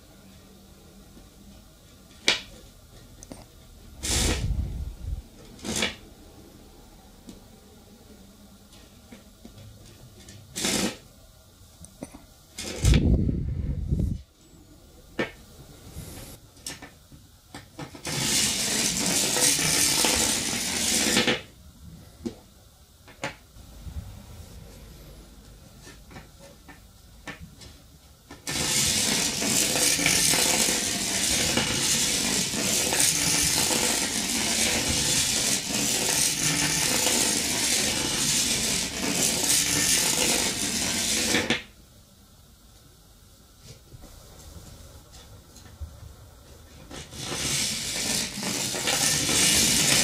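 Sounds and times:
copper wire coil rattling: 0:28.4 - 0:41.5, 0:47.0 - 0:50.0.

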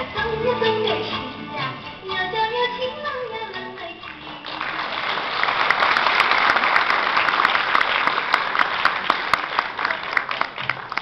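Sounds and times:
audience applauding: 0:04.1 - 0:11.0.

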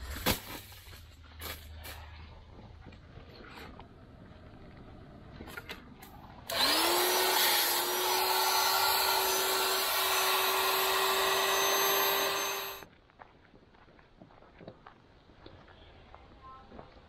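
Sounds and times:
electric motor spinning up: 0:06.5 - 0:12.8.

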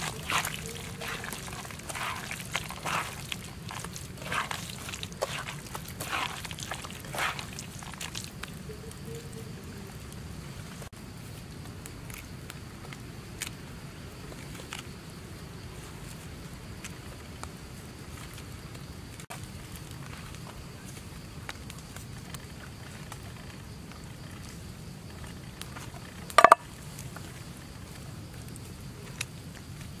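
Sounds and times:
hands squelching fish roe: 0:00.0 - 0:08.6.

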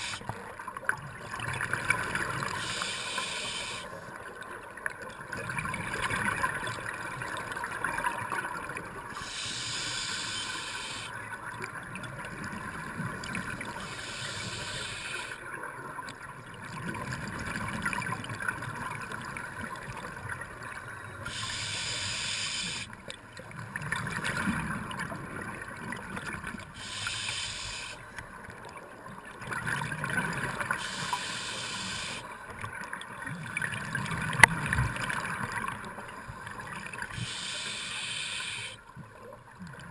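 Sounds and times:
regulator hissing inhales: 0:00.0 - 0:00.2, 0:02.6 - 0:03.9, 0:09.2 - 0:11.1, 0:13.8 - 0:15.4, 0:21.3 - 0:22.9, 0:26.8 - 0:28.0, 0:30.8 - 0:32.2, 0:37.1 - 0:38.8.

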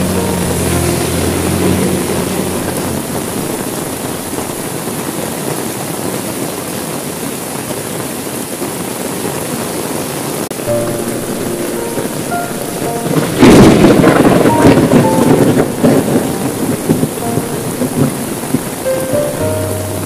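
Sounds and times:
low background music: 0:00.0 - 0:04.7, 0:10.6 - 0:20.0
heavy rain on window glass: 0:00.0 - 0:20.0.

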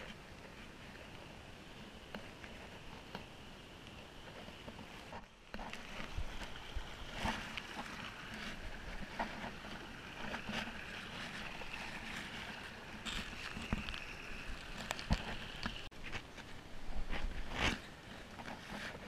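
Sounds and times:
water rushing in canyon: 0:03.9 - 0:15.9
camera scraping against rock: 0:04.5 - 0:19.0.

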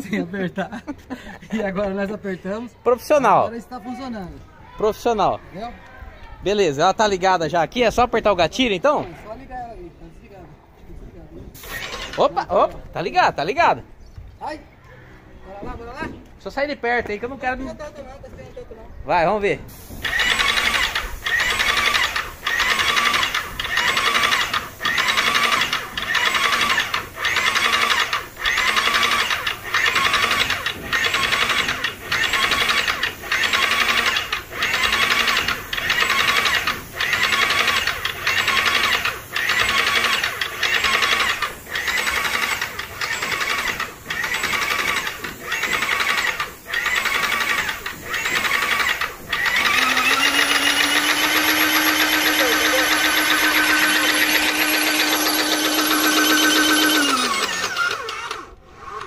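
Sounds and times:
paint sprayer pump pulsing: 0:11.6 - 0:12.3, 0:19.7 - 0:59.0.

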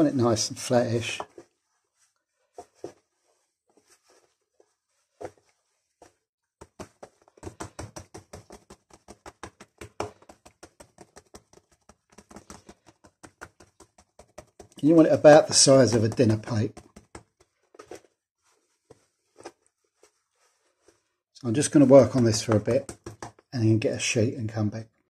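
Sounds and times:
fingers patting dough on board: 0:06.0 - 0:18.1, 0:21.6 - 0:23.8.

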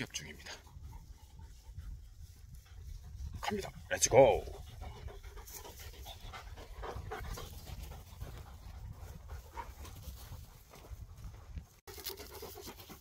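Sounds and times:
dog panting: 0:00.2 - 0:13.0.

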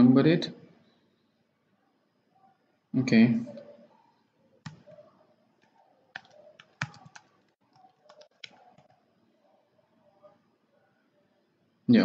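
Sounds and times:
computer keyboard key taps: 0:06.2 - 0:08.6.

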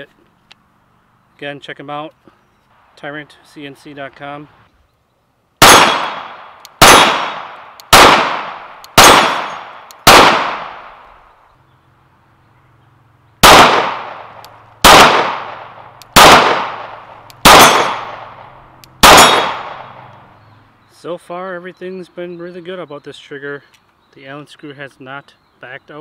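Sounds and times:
pistol shots: 0:05.6 - 0:11.0, 0:13.4 - 0:20.1.

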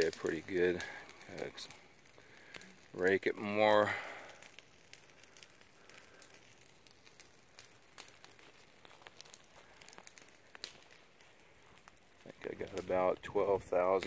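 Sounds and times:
footsteps on dry twigs: 0:08.0 - 0:13.1.

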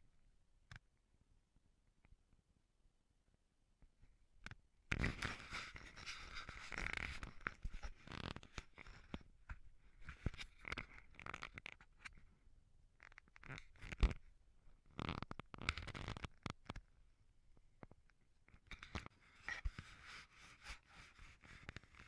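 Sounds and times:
rubbing and rustling handling noise: 0:04.9 - 0:12.3, 0:18.7 - 0:22.0.

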